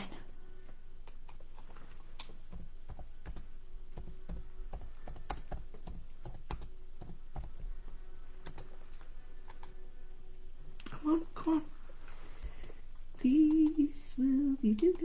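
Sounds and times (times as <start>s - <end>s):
computer keyboard typing: 2.1s - 7.7s, 8.4s - 9.8s, 13.4s - 13.8s.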